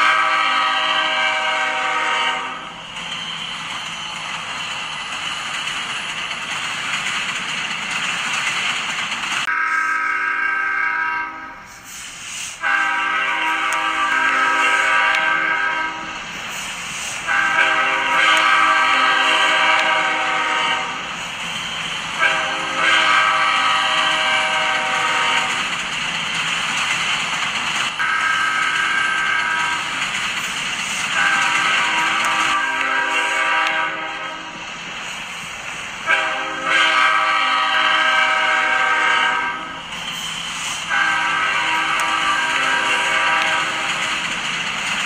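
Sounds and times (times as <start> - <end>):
train horn blasts: 0.0 - 2.7, 9.5 - 11.7, 12.6 - 16.2, 17.2 - 21.1, 22.2 - 25.6, 28.0 - 29.9, 31.1 - 34.6, 36.0 - 39.8, 40.9 - 43.9
train running noise: 0.0 - 45.0.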